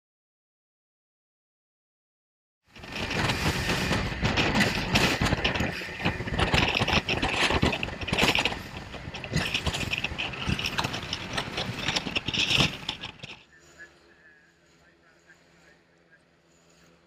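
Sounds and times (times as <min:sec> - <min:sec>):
rush of wind and water: 0:02.7 - 0:13.4.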